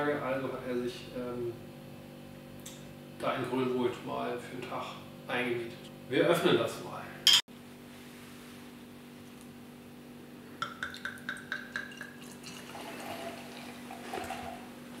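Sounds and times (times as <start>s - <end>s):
beer splashing into glass: 10.6s - 14.4s.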